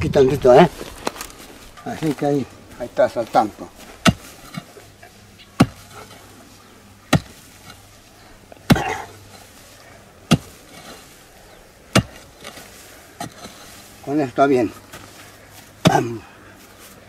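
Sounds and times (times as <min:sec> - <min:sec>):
pick striking stony soil: 0:00.4 - 0:06.4, 0:07.1 - 0:08.0, 0:08.6 - 0:11.2, 0:11.9 - 0:14.0, 0:14.7 - 0:16.2.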